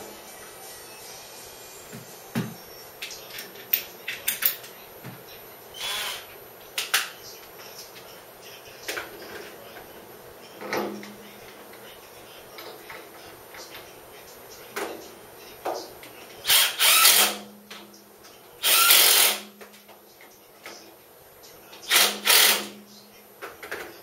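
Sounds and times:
cordless drill whirring: 5.8s - 6.3s, 16.5s - 17.4s, 18.6s - 19.4s, 21.9s - 22.7s.

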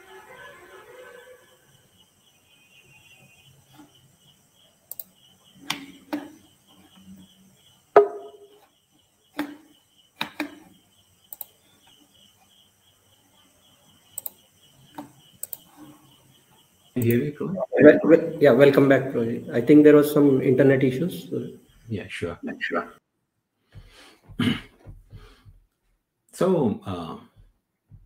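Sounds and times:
faint pulsing high tone: 17.3s - 19.6s.

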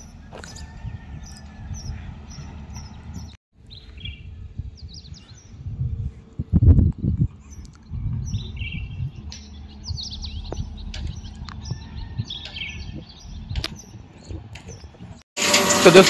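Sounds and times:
small birds chirping: 0.0s - 5.8s, 6.9s - 15.2s
steady low rumble: 4.1s - 14.5s.

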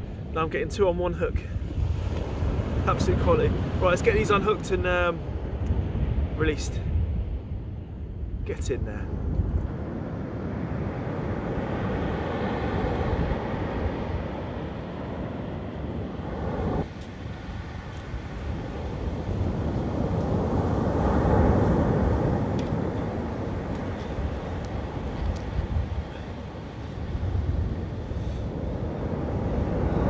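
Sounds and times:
surf washing onto beach: 10.5s - 30.0s.

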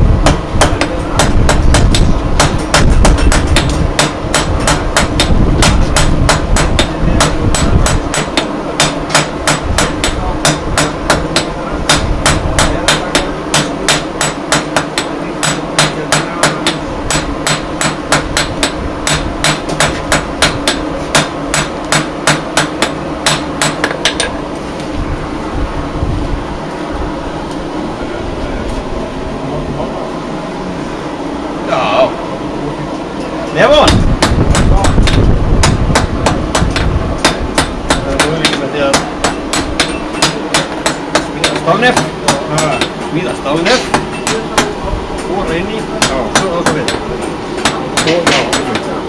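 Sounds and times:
steady hum: 0.0s - 49.0s
hammer striking iron on anvil: 0.2s - 24.4s, 33.7s - 44.8s, 45.9s - 48.9s.

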